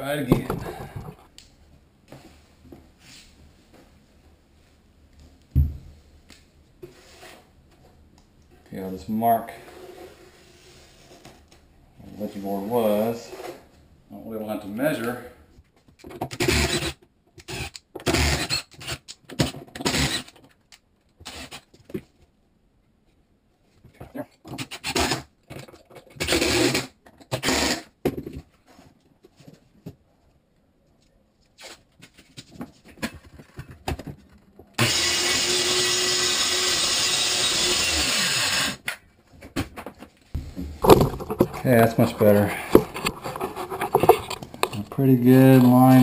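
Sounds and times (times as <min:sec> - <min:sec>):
drill driving screws into wood: 0:16.3 - 0:20.4, 0:21.2 - 0:21.7, 0:24.6 - 0:25.3, 0:26.2 - 0:28.0, 0:34.8 - 0:39.0
circular saw cutting wood: 0:34.8 - 0:38.8.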